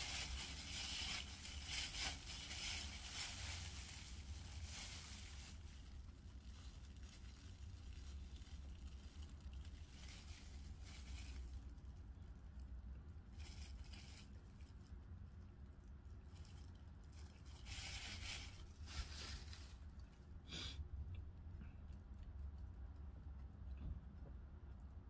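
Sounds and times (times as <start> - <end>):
plastic wrapping crinkling: 0.0 - 12.6, 13.3 - 14.9, 16.3 - 20.2.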